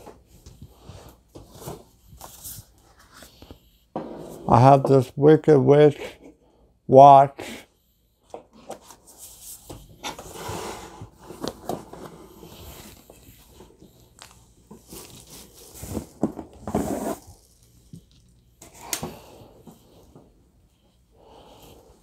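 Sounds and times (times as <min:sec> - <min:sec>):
packaging rustling: 0:12.9 - 0:18.4.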